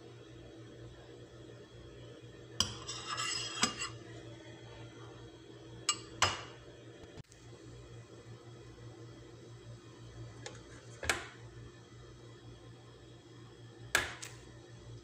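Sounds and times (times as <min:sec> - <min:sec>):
metal utensil scraping ceramic dish: 0:02.6 - 0:04.0.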